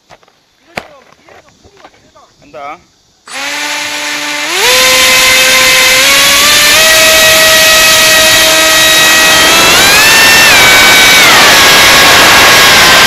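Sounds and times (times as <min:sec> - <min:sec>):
electric motor propeller whine: 0:03.3 - 0:13.0
rushing air: 0:03.3 - 0:13.0.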